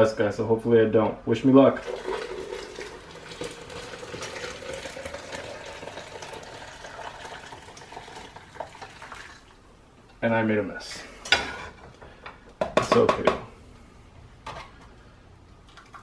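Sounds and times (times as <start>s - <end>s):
tea pouring through a strainer: 1.8s - 9.6s.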